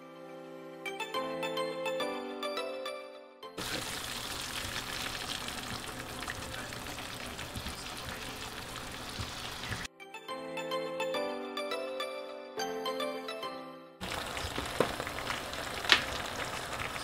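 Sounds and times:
background music: 0.0s - 14.8s
food sizzling in a pan: 3.6s - 9.9s, 14.0s - 17.0s.

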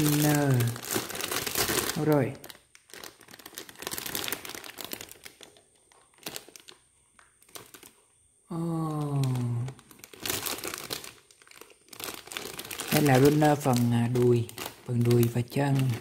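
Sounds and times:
plastic bags crinkling: 0.0s - 16.0s.

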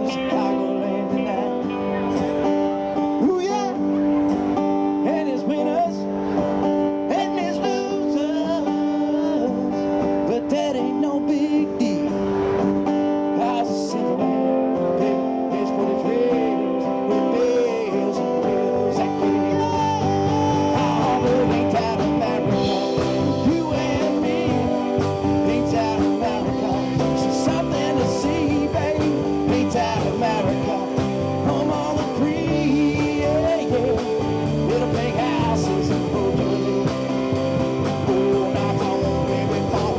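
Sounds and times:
male singer: 0.0s - 2.1s, 3.2s - 3.9s, 4.9s - 6.2s, 6.9s - 12.2s, 13.3s - 39.9s
electric and acoustic guitars: 0.0s - 39.9s
drum kit: 19.1s - 39.9s.

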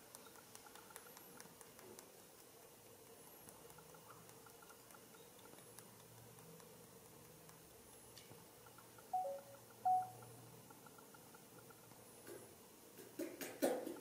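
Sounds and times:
faint ticks: 0.0s - 12.5s
faint steady hum: 0.0s - 14.0s.

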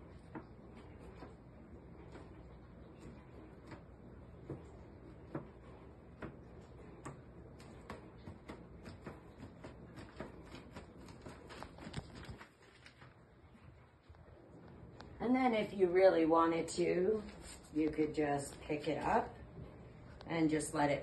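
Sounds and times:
faint room hum: 0.0s - 21.0s.

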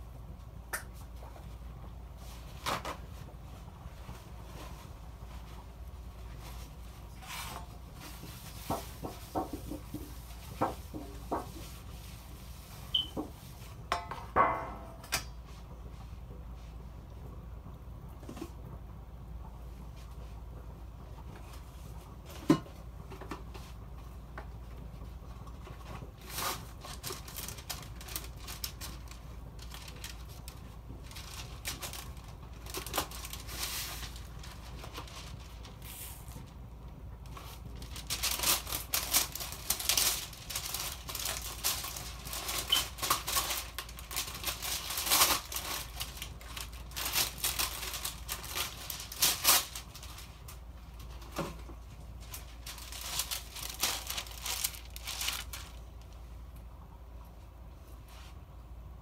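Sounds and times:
low steady hum: 0.0s - 59.0s
food crackling and popping: 21.0s - 56.7s.

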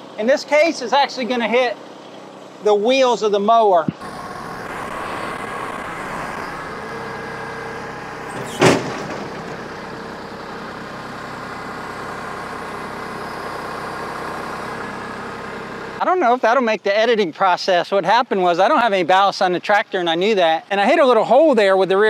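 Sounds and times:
tractor engine running: 3.9s - 16.1s
loud metal clank: 8.3s - 9.9s.

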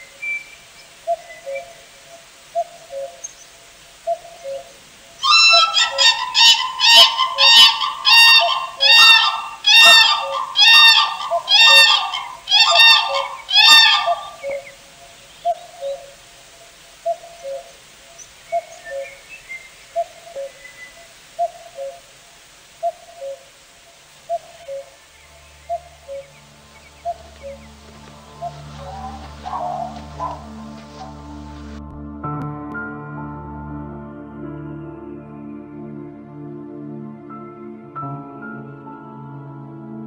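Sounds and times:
cranes trumpeting: 1.5s - 31.8s.

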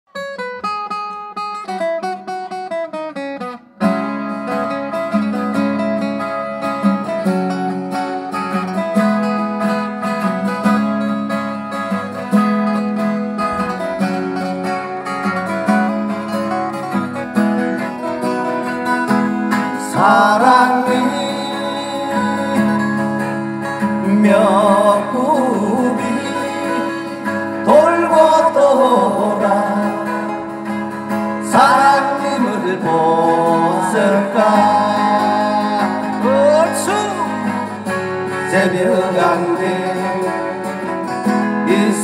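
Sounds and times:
acoustic guitars strumming: 0.1s - 42.0s
person singing: 17.8s - 42.0s.

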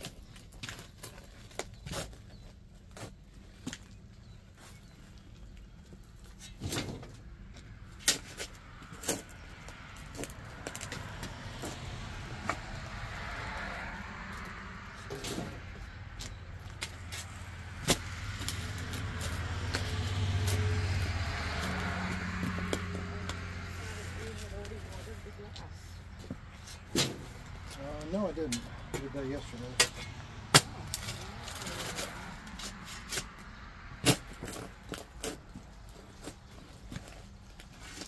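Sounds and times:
vehicle engine running: 10.0s - 32.7s.

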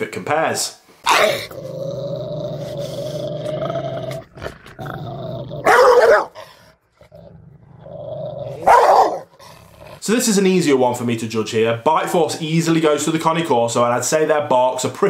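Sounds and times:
dog growling: 1.1s - 10.0s
loud dog bark: 5.6s - 6.4s, 8.6s - 9.3s.

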